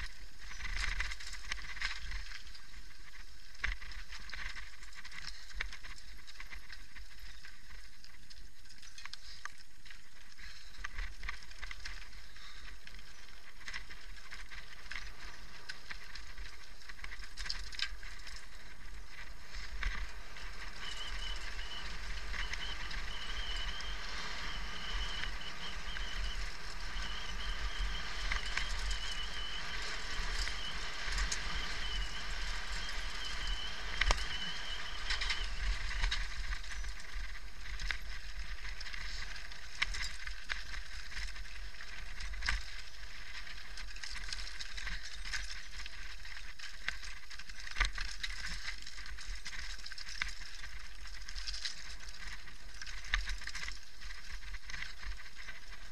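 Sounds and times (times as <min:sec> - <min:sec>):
bike rattling over stones: 0:00.0 - 0:55.9
thin high tone: 0:20.1 - 0:36.0.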